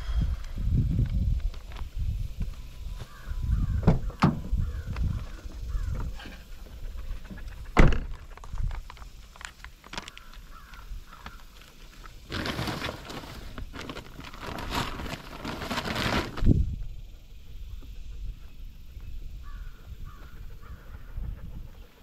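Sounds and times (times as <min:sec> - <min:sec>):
crows cawing faintly: 0:02.9 - 0:07.8, 0:10.0 - 0:11.6, 0:19.4 - 0:21.9
rustling: 0:04.7 - 0:16.7.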